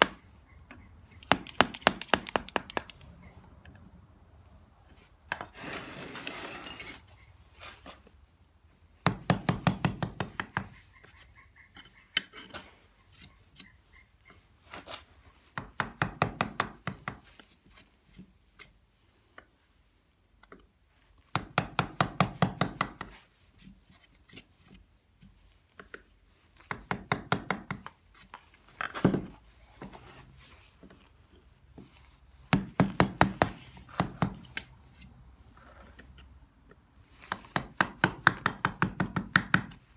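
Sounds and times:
chisel paring and scraping: 5.2 - 7.1, 9.1 - 19.5.

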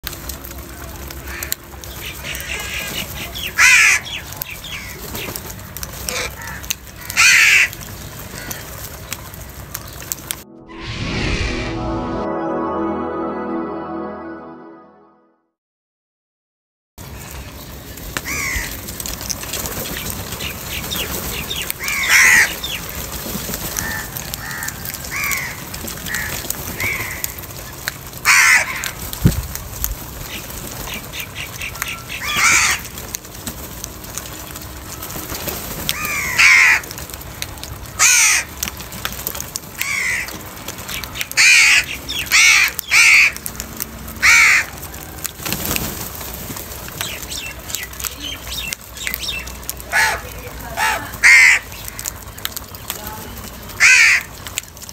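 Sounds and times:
faint crow calls: 1.2 - 5.0, 6.1 - 8.7, 18.2 - 18.8, 23.7 - 27.3, 31.4 - 32.9, 35.9 - 36.9, 38.0 - 38.5, 39.8 - 40.4, 41.4 - 43.4, 44.2 - 45.1, 49.9 - 52.0, 53.8 - 54.4
crows cawing: 1.3 - 1.5, 3.5 - 5.0, 6.1 - 7.7, 18.3 - 18.8, 21.8 - 22.6, 23.8 - 27.3, 28.2 - 29.0, 31.9 - 32.9, 35.9 - 36.9, 38.0 - 38.5, 39.8 - 40.4, 41.4 - 43.4, 44.2 - 45.1, 49.9 - 51.9, 53.8 - 54.3.

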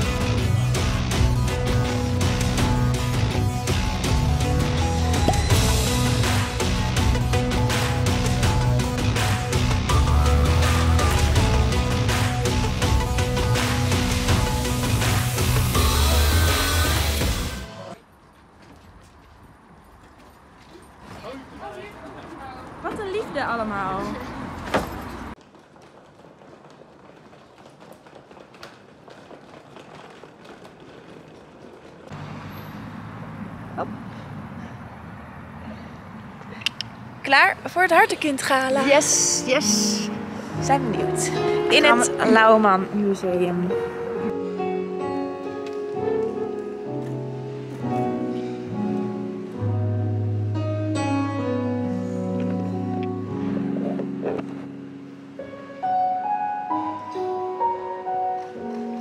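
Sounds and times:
soft footsteps: 24.7 - 32.2
slow instrumental chords: 44.0 - 59.0.

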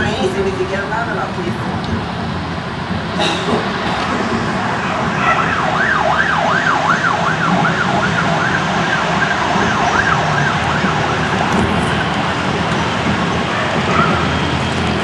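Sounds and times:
steady rumbling noise: 0.0 - 15.0
emergency siren yelping: 3.2 - 15.0.

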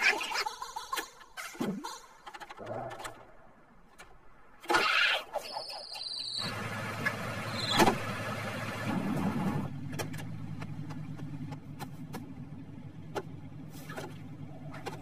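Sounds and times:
squeaky cartoon character chatter: 0.0 - 2.0
vehicle engine humming: 6.4 - 15.0.

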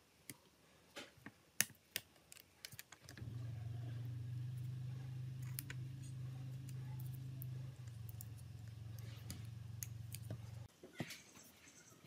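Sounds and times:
steady low hum: 3.2 - 10.7.

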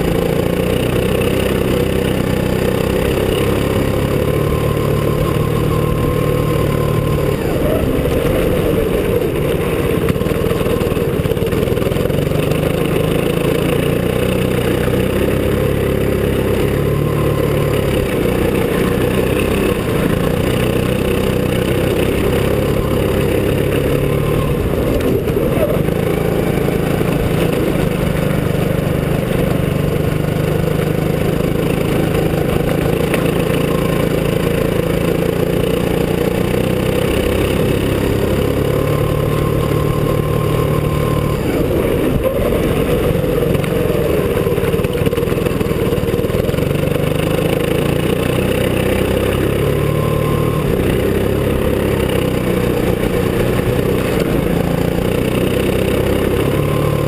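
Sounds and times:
go-kart engine revving: 0.0 - 57.0.

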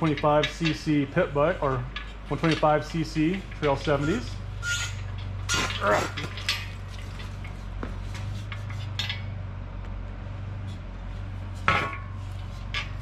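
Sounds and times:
steady low hum: 0.0 - 13.0
metallic clinks and rustling: 1.7 - 9.4.

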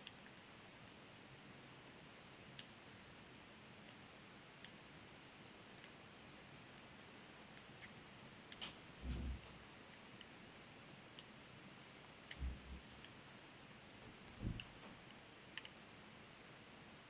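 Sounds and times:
knitting needles clicking: 6.7 - 9.2, 14.3 - 15.8
low handling thuds: 14.4 - 14.9.

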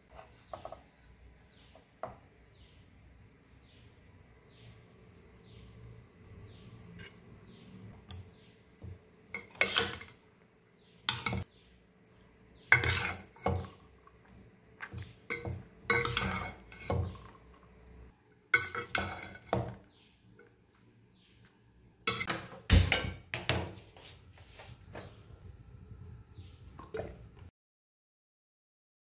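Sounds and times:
spoon scraping a metal pan: 6.9 - 7.6, 9.3 - 10.2, 11.1 - 11.5, 12.6 - 13.8, 14.8 - 17.4, 18.6 - 19.8, 22.1 - 23.8.

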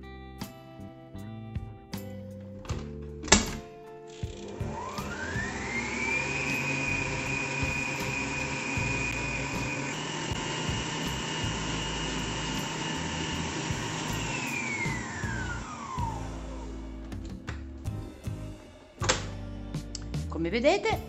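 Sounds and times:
stand mixer motor whining: 4.2 - 16.9
whisk beating egg whites: 5.5 - 15.4.

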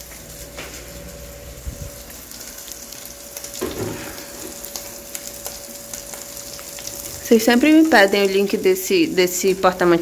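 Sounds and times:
meat sizzling in a pan: 0.0 - 10.0.

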